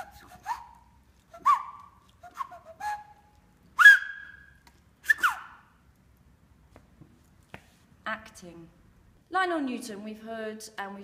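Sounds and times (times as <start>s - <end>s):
man whistling short notes: 0.0s - 5.7s.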